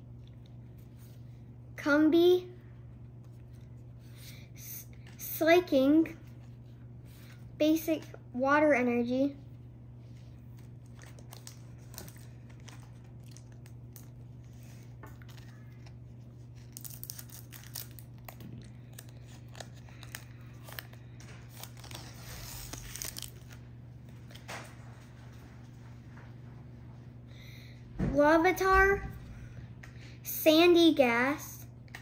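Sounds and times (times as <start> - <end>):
foil wrapper crinkling: 10.5 - 23.7.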